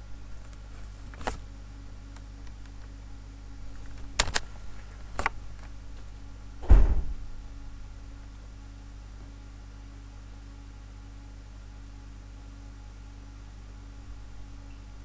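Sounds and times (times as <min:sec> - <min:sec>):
low electrical hum: 0:00.0 - 0:15.0
heavy low thump: 0:06.6 - 0:07.8.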